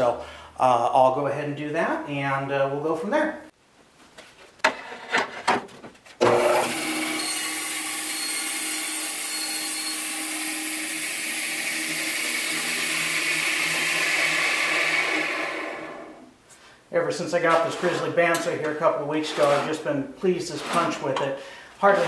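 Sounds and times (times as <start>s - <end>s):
bandsaw blade cutting wood: 6.2s - 16.1s, 19.2s - 21.2s
bandsaw running: 6.2s - 16.2s, 19.3s - 19.8s.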